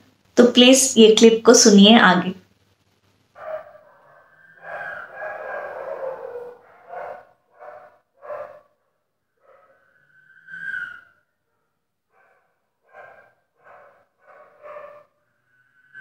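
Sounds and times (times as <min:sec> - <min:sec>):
pitched crying calls: 0:03.8 - 0:06.6
drawn-out wail: 0:03.8 - 0:07.1.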